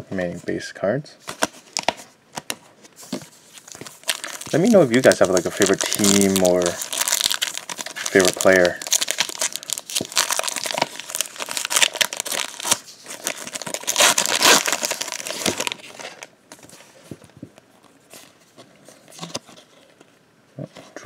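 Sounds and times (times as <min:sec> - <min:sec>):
foil wrapper crinkling and tearing: 0:03.6 - 0:16.3.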